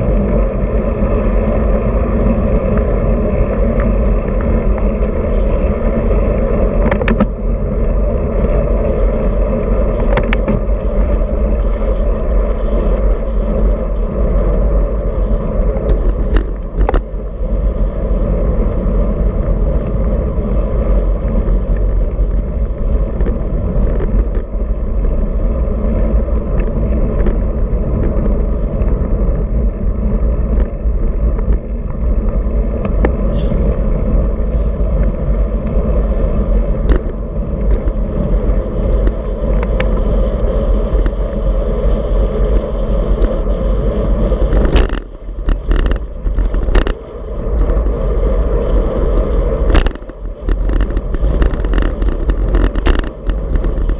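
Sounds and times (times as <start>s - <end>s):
tyre and road noise: 0.0s - 53.9s
wind rushing over microphone: 0.0s - 53.9s
clicks and knocks from bumps: 15.8s - 17.1s, 36.8s - 38.0s, 44.4s - 47.9s, 48.7s - 53.9s.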